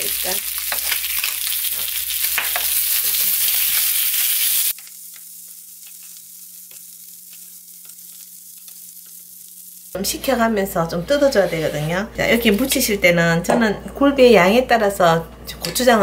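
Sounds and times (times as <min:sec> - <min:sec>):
fish sizzling in oil: 0:00.0 - 0:10.0.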